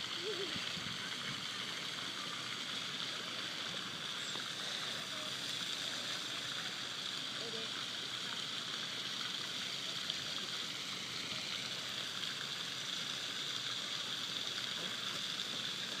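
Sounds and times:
fountain spraying into water: 0.0 - 16.0.

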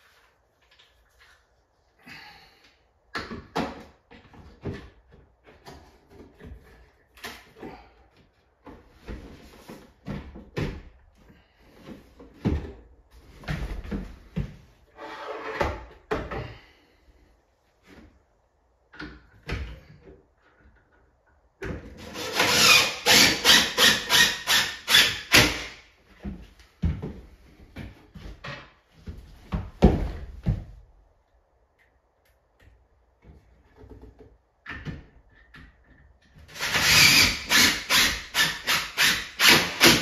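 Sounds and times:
cordless drill driving screw: 36.6 - 40.0.

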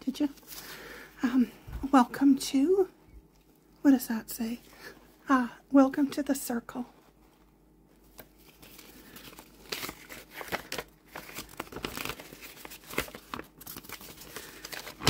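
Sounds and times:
paper packaging crinkling: 8.0 - 15.0.

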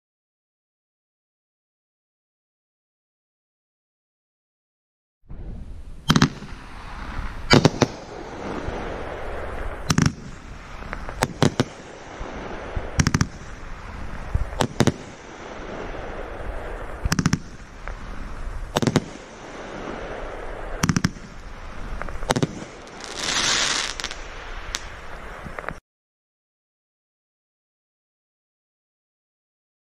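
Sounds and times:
firework bangs: 6.0 - 25.7
firework crackling: 6.0 - 25.8.

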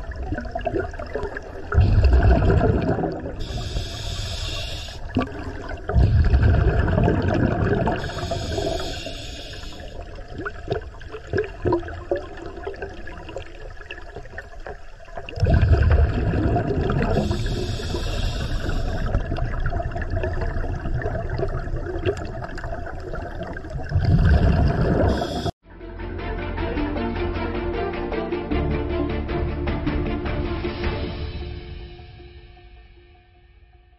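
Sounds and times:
exhaled bubbles rumbling: 0.0 - 25.6
regulator hiss on inhales: 3.4 - 5.2, 7.9 - 10.3, 17.1 - 19.4, 25.0 - 25.5.

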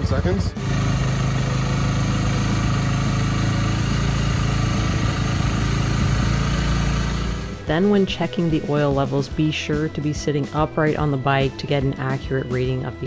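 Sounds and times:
motorcycle engine at raised revs: 0.0 - 7.8.

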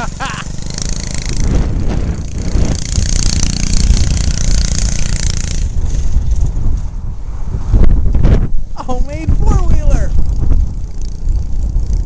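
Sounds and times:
small engine running: 0.0 - 6.8, 10.0 - 12.0.

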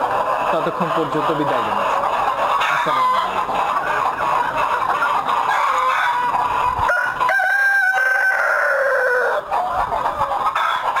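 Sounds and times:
chickens clucking: 0.0 - 11.0
rooster crowing: 5.5 - 9.5.

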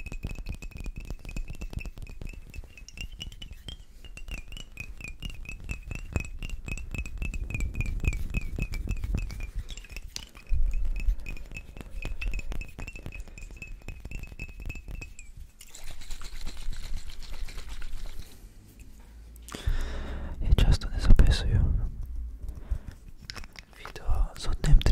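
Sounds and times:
fingers tapping glass bottles: 0.0 - 18.2
thin ringing tone: 0.5 - 15.6.

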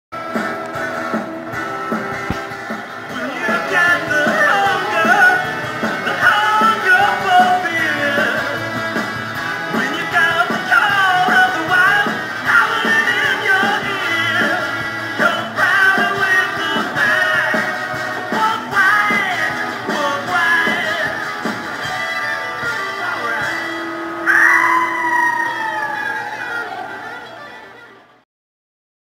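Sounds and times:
rock and roll jingle music: 0.2 - 27.8
person singing: 3.1 - 8.8, 9.5 - 21.4.

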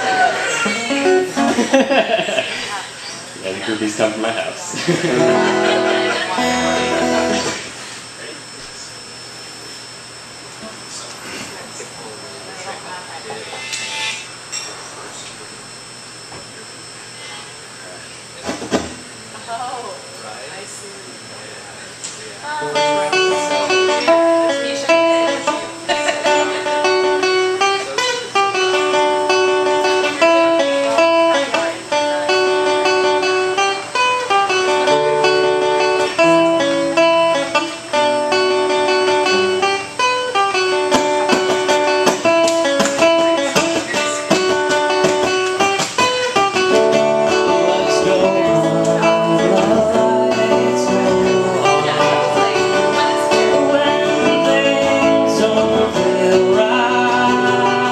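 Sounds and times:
strummed guitar chords: 0.0 - 2.6, 3.8 - 8.1, 22.5 - 57.9
acoustic guitars playing melody: 0.0 - 8.1, 22.4 - 57.9.

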